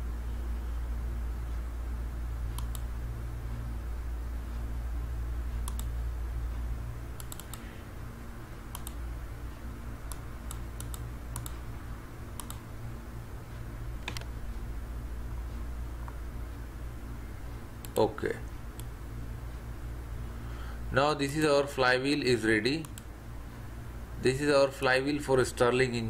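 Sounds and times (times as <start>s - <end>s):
low hum: 0.0s - 26.0s
mouse and key clicks: 2.6s - 2.9s, 5.6s - 5.9s, 7.2s - 7.6s, 8.7s - 9.0s, 10.1s - 11.6s, 12.4s - 12.6s.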